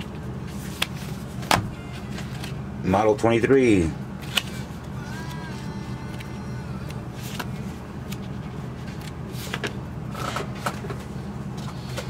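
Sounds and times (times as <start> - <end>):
paper pages rustling: 7.2 - 10.3.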